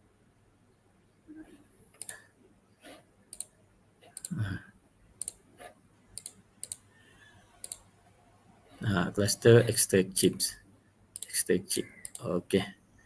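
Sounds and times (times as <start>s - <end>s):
computer mouse clicking: 1.9s - 2.2s, 2.9s - 4.4s, 5.2s - 6.8s, 7.6s - 7.9s, 11.2s - 11.4s, 12.0s - 12.3s.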